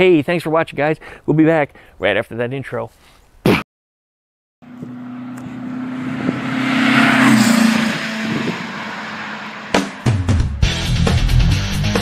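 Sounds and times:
vehicle engine passing by: 4.6 - 10.8.

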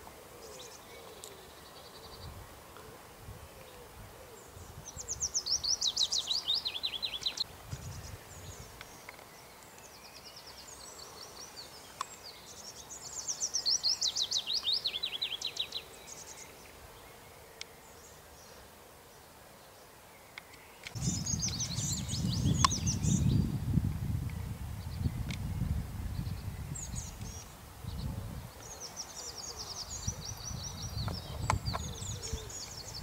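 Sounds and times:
outdoor background noise: 0.0 - 33.0
songbird singing: 0.0 - 33.0.

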